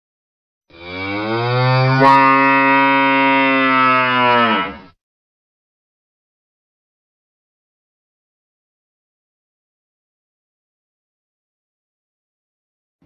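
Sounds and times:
cow mooing: 0:00.7 - 0:05.0.

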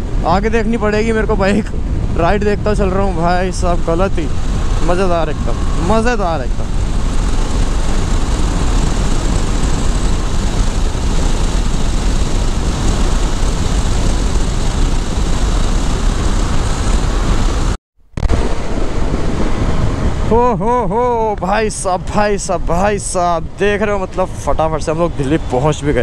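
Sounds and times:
road noise: 0:00.0 - 0:26.0
wind rush: 0:00.0 - 0:26.0
motorcycle engine: 0:01.4 - 0:21.2.

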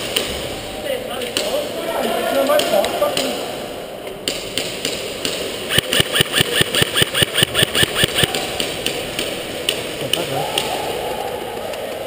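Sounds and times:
airsoft gun rapid firing: 0:05.2 - 0:09.2.

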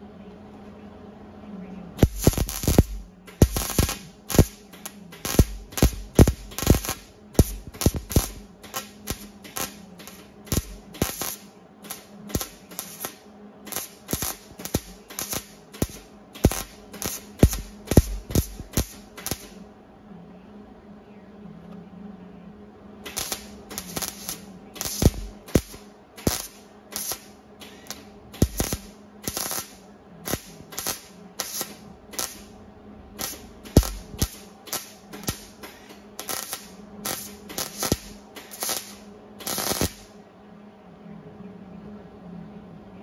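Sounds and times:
welding arc sputtering: 0:02.0 - 0:19.6, 0:23.0 - 0:32.6, 0:33.2 - 0:40.2.

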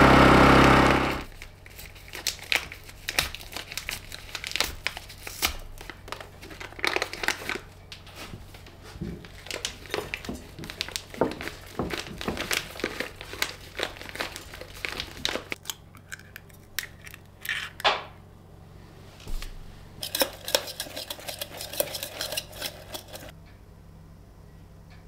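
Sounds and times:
paper packet crinkling: 0:01.2 - 0:17.6
whisk clinking against steel: 0:20.0 - 0:23.3.

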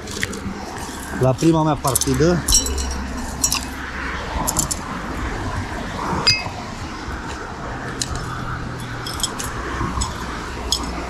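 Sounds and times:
scrap iron clinking: 0:01.9 - 0:03.8, 0:06.2 - 0:06.6, 0:09.0 - 0:11.0
metal ringing ping: 0:02.5 - 0:03.8, 0:06.3 - 0:06.6.

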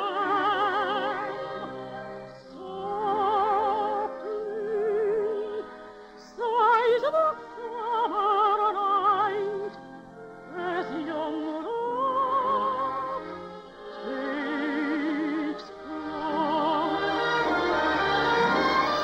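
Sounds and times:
orchestra playing: 0:10.2 - 0:19.0.

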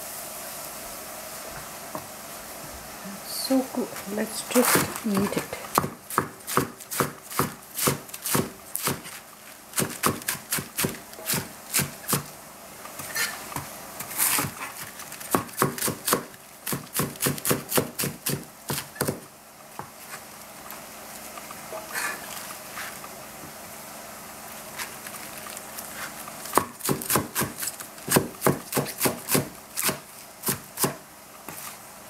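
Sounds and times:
cleaver chopping on cutting board: 0:04.7 - 0:09.0, 0:15.3 - 0:19.2, 0:26.6 - 0:31.0.

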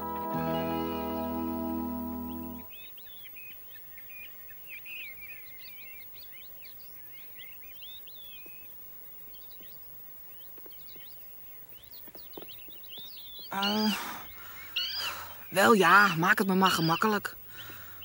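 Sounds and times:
faint outdoor hiss: 0:00.0 - 0:18.0
small birds chirping: 0:00.0 - 0:18.0.

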